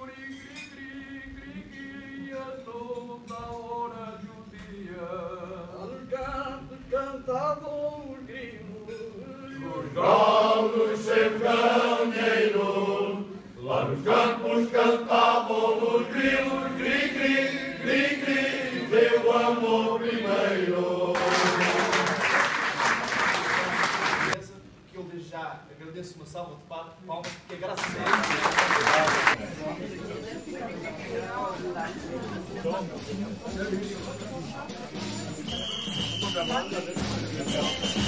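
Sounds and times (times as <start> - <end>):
male choir singing unaccompanied: 0.0 - 8.6, 9.2 - 22.4, 35.4 - 38.0
applause: 21.2 - 24.4, 27.6 - 29.4.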